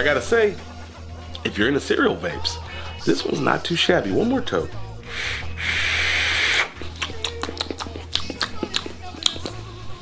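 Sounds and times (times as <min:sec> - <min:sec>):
background music with light ticks: 0:00.0 - 0:04.6, 0:06.8 - 0:10.0
vape hissing: 0:05.0 - 0:06.8.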